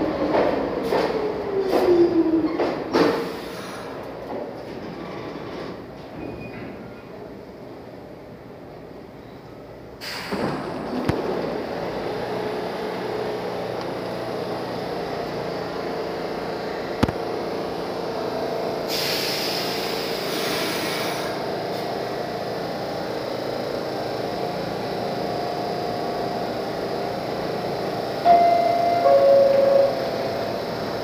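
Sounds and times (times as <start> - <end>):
subway train equipment hum: 0.0 - 31.0
hiss of released air: 10.0 - 10.4, 18.9 - 21.3
door chime: 28.3 - 30.6.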